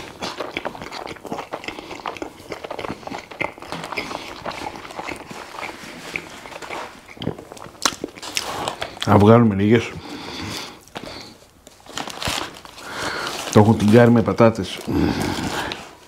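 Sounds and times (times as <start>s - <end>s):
chewing with wet mouth clicks: 0.0s - 9.1s.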